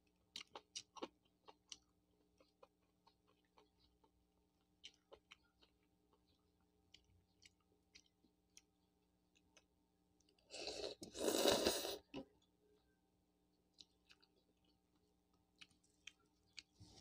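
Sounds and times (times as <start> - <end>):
loud slurp of noodles: 10.5 - 12.0.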